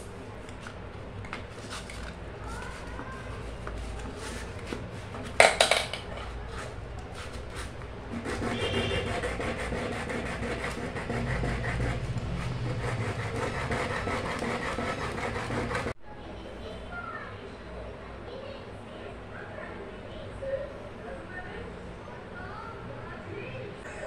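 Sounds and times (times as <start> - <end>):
pipe scraping on sandpaper: 1.5 - 5.4, 6.2 - 16.0.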